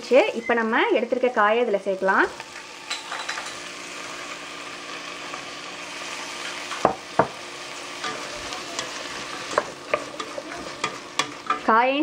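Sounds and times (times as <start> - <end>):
vegetables sizzling in a pot: 0.0 - 12.0
spoon clinking in a pot: 2.9 - 3.6
sharp knocks on a pot: 6.8 - 7.4.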